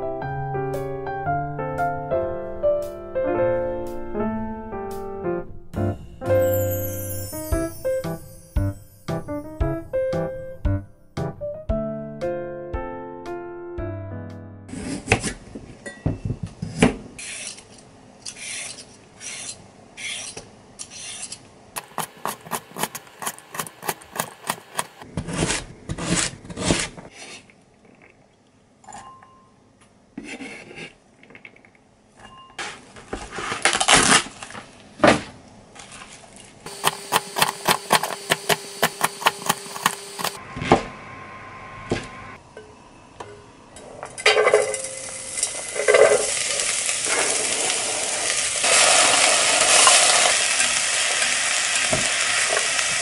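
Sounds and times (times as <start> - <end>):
utensils scraping and clinking: 17.2 - 25.0
knife chopping on a board: 21.8 - 26.9.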